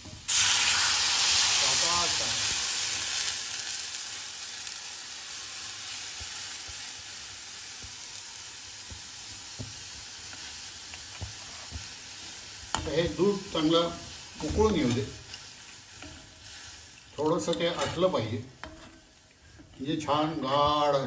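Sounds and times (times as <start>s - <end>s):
milk sizzling in hot pan: 0.0s - 21.0s
steel ladle knocking pan: 17.4s - 21.0s.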